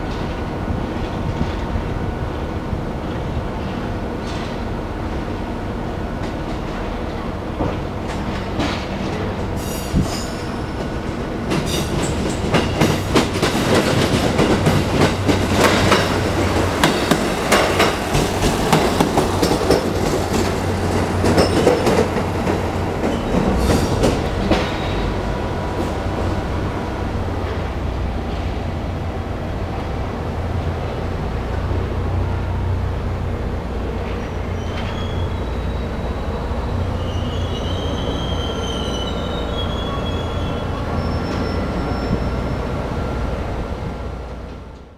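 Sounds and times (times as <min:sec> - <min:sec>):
train wheels clicking over rail joints: 0:03.0 - 0:04.8, 0:06.2 - 0:26.0.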